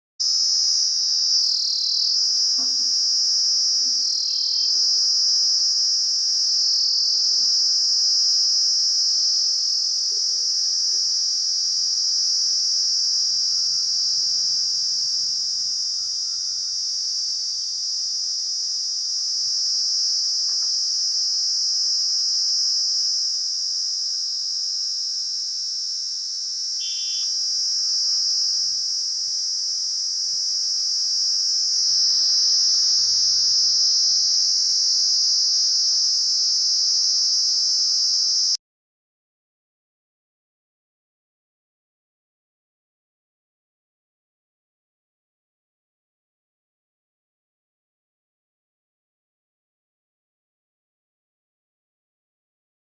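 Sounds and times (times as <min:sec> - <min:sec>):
cicada buzzing: 0:00.2 - 0:38.6.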